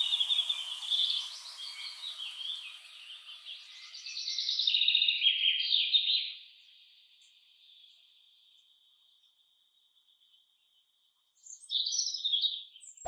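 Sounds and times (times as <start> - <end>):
songbird warbling and trilling: 0.0 - 8.0.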